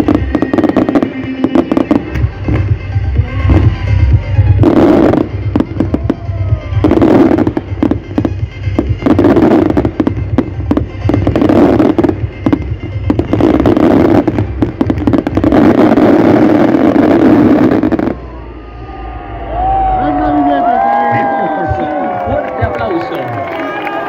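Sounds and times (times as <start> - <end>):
fireworks bangs and crackling: 0.0 - 18.5.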